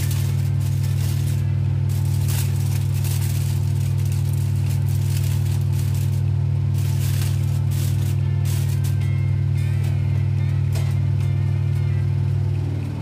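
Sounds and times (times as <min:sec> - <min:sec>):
aluminium foil crinkling: 0:00.0 - 0:09.2
loud steady low hum: 0:00.0 - 0:13.0.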